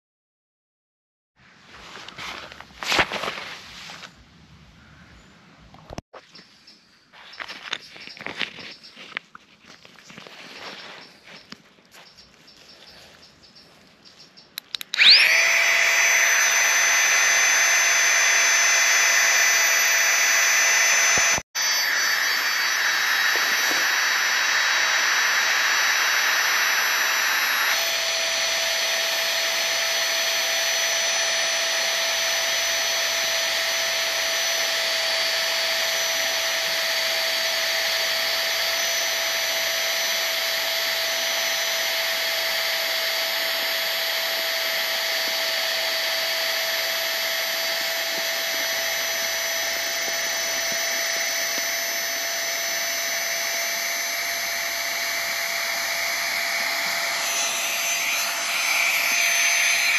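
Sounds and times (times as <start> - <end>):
air pump whining: 14.6 - 59.9.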